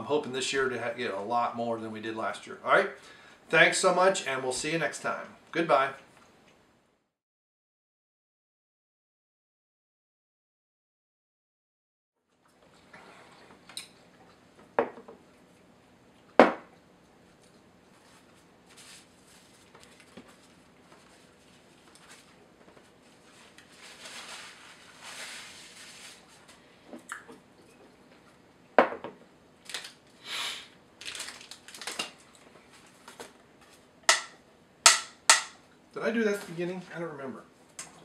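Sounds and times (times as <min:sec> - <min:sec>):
plastic wrapper crinkling: 0:18.7 - 0:22.4, 0:29.6 - 0:30.2, 0:31.0 - 0:33.2
objects knocking on table: 0:28.8 - 0:29.2.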